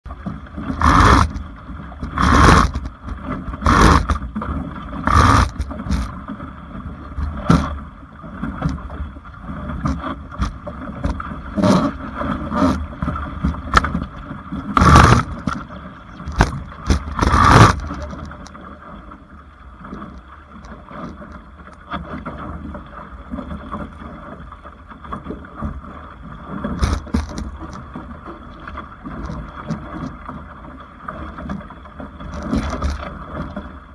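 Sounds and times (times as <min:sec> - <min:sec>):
water rushing along hull: 0:00.0 - 0:33.9
water slapping hull: 0:00.0 - 0:33.9
wind rumble on microphone: 0:00.1 - 0:19.1.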